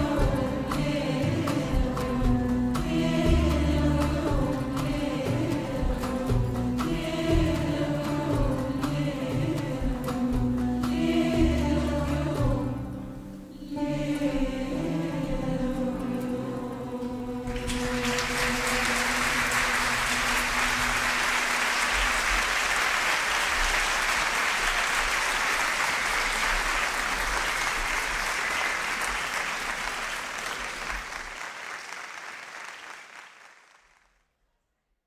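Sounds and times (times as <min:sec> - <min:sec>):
choir and orchestra chord: 0:00.0 - 0:22.6
audience applauding: 0:17.5 - 0:34.2.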